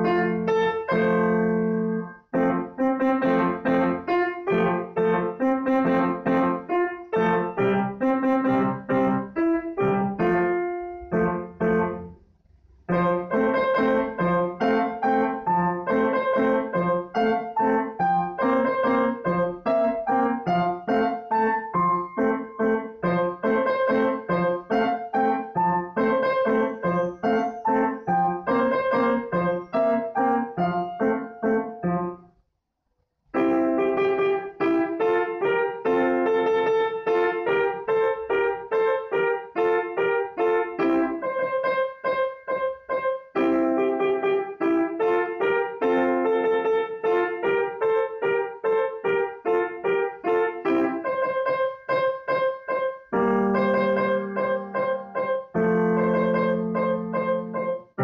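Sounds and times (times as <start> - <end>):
grand piano quick run: 0.0 - 32.3, 33.3 - 58.0.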